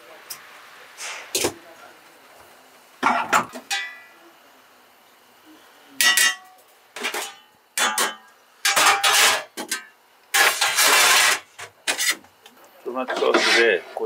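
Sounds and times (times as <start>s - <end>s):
metal lids clinking on pans: 3.0s - 4.1s, 6.0s - 12.2s.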